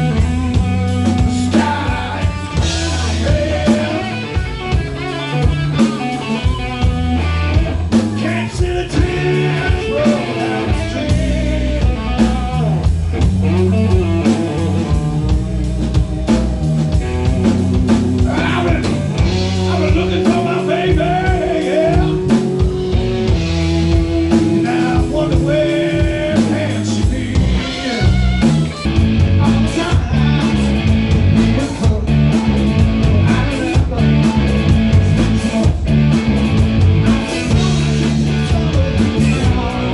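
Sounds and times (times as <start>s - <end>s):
man singing lead: 0.0s - 15.9s, 17.9s - 39.9s
bass guitar: 0.0s - 39.9s
drum kit: 0.0s - 39.9s
electric guitar: 0.0s - 39.9s.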